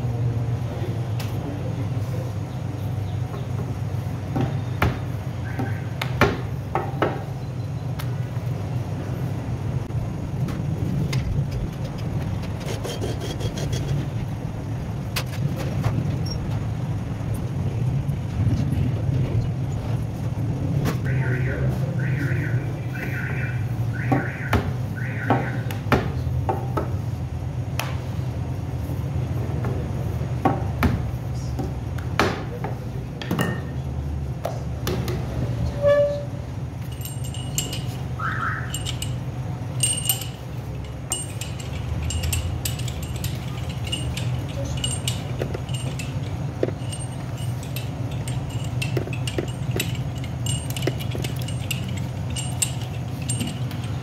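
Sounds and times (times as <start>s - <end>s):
steady low hum: 36.4s - 54.0s
light clinks and knocks: 36.8s - 54.0s.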